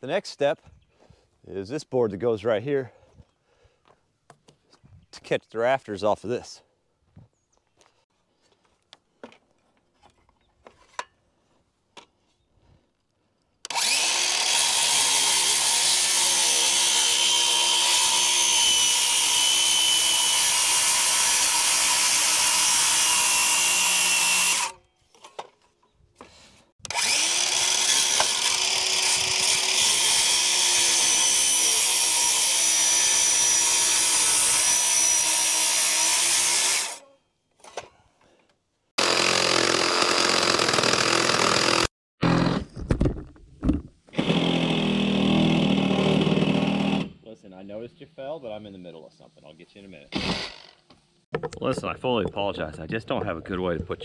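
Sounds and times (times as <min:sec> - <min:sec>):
power tool motor running: 0:13.7 - 0:24.8, 0:26.8 - 0:37.0, 0:39.0 - 0:42.6, 0:44.2 - 0:47.1.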